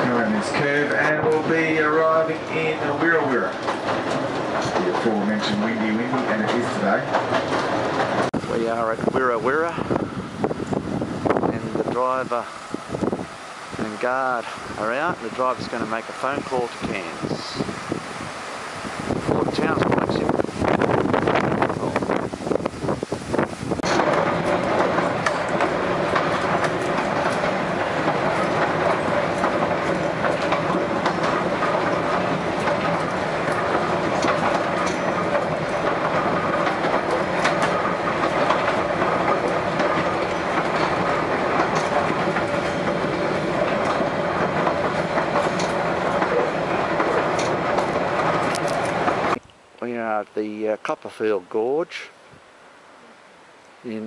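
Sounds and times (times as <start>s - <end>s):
wheels clicking over rail joints: 0.0s - 52.4s
diesel engine drone: 18.0s - 49.4s.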